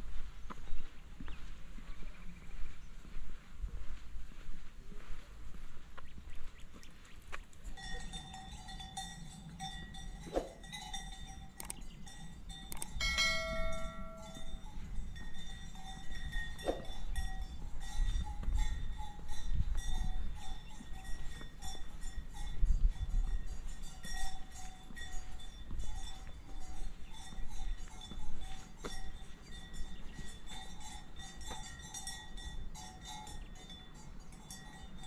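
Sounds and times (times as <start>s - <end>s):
livestock bells clanking: 7.6s - 35.0s.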